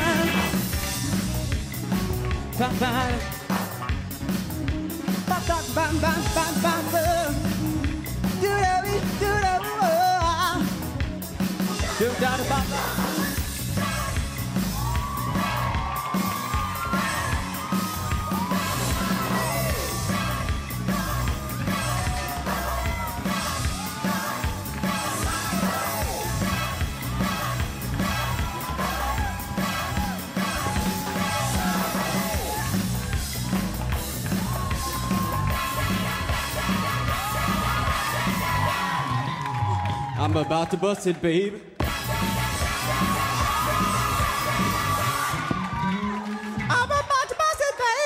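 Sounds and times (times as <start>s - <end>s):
funk song: 0.0s - 48.0s
shouts and whoops: 14.7s - 20.4s, 28.0s - 32.8s, 34.2s - 40.8s, 41.9s - 48.0s.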